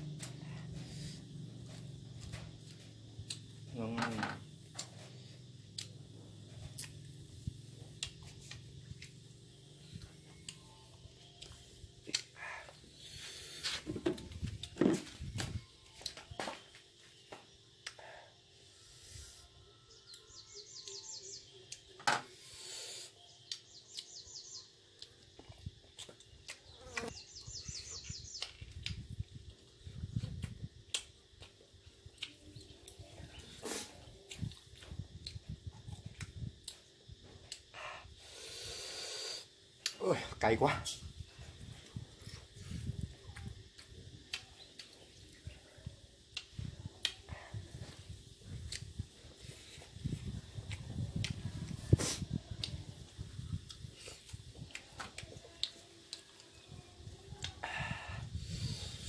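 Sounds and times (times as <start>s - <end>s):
chewing with wet mouth clicks: 11.2s - 12.4s, 25.0s - 27.1s, 30.4s - 33.0s, 34.2s - 36.8s, 43.3s - 45.5s, 53.6s - 56.6s.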